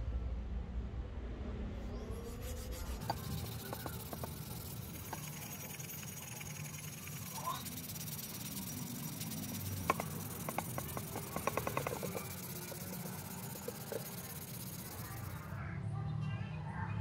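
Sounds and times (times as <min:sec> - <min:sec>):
abrasive pad rubbing on steel: 0:01.9 - 0:15.6
animal chirps: 0:01.9 - 0:15.6
steady hiss: 0:02.5 - 0:15.5.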